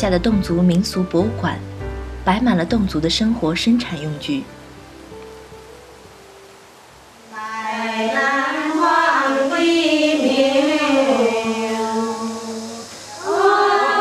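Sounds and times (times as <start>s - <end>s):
low sung drone: 6.6s - 14.0s
women singing polyphonic choir: 7.3s - 14.0s.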